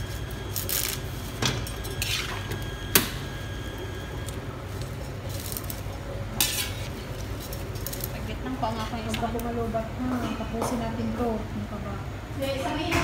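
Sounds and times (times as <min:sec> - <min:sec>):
spatula scraping a wok: 0:01.9 - 0:02.5, 0:05.3 - 0:09.0.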